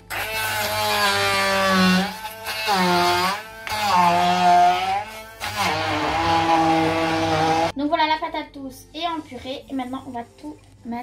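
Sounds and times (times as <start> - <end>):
stick blender pureeing: 0.0 - 7.8
background music: 0.0 - 11.0.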